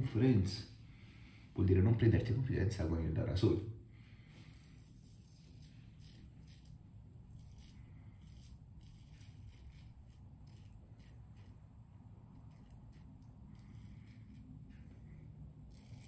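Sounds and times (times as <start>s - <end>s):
razor scraping stubble: 4.3s - 16.0s.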